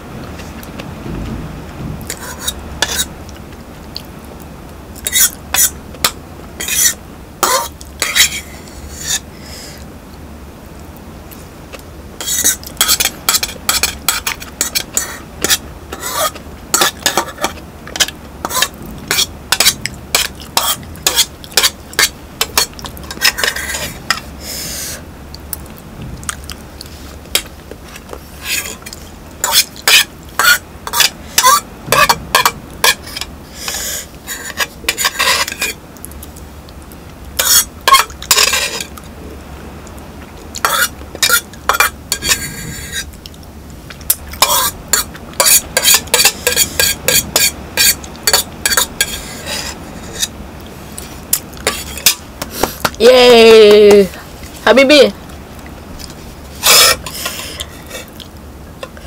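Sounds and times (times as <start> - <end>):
fork scraping metal pot: 2.1 - 3.1, 5.0 - 9.3, 12.2 - 25.0, 27.3 - 35.8, 37.4 - 38.9, 40.6 - 43.1, 44.1 - 50.3, 51.0 - 53.0, 56.5 - 58.1.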